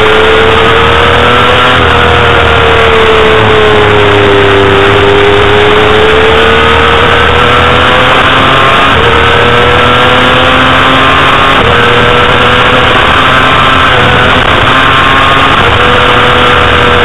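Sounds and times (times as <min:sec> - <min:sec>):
motorcycle engine at high revs: 0:00.0 - 0:17.0
wind noise: 0:11.3 - 0:17.0.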